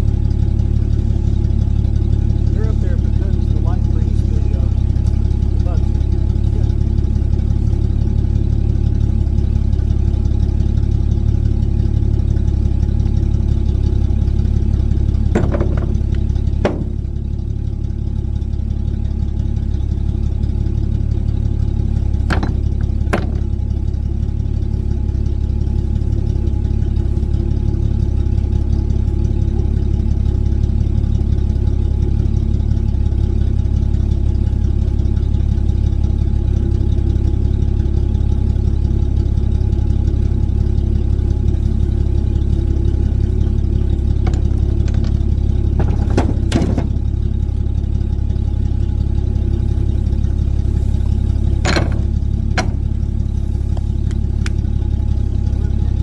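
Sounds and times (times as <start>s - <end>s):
pickup truck engine idling: 0.0s - 56.0s
sharp knocks of rocks: 15.3s - 17.2s, 22.3s - 23.6s.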